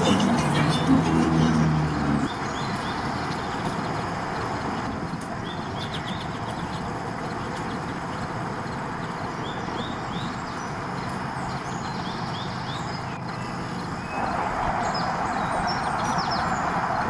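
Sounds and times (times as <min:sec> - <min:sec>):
small birds chirping: 0:00.0 - 0:17.0
steady rushing noise: 0:13.6 - 0:17.0.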